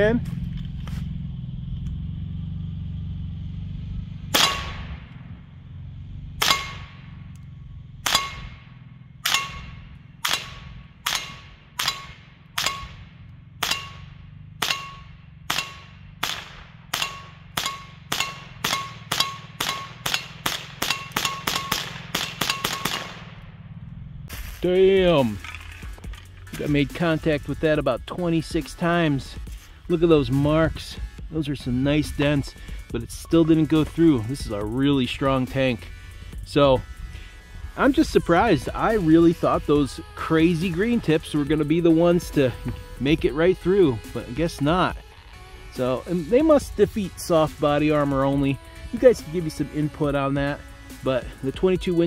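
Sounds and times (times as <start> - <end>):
rifle shots: 4.3 - 5.3, 6.4 - 7.1, 8.0 - 23.5
bullets clanging on metal: 6.4 - 6.9, 8.0 - 23.2, 25.2 - 26.9.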